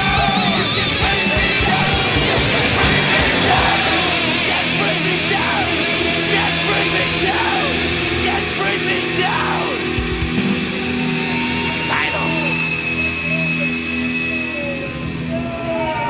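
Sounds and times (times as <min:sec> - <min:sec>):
heavy rock music: 0:00.0 - 0:12.2.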